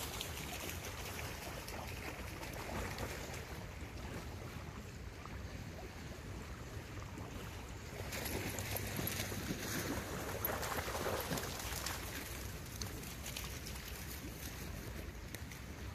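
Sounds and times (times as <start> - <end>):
dog splashing in water: 8.0 - 14.1.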